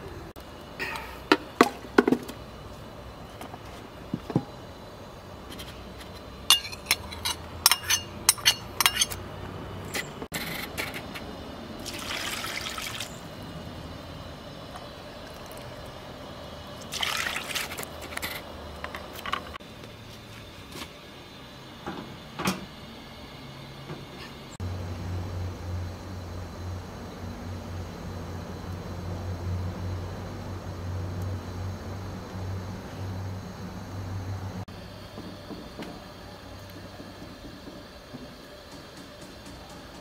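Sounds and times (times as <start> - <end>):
metal ladle clinking on pot: 6.5 - 9.2
metal lid clanking: 6.5 - 9.2
liquid splashing into pot: 11.8 - 13.2, 16.8 - 17.8.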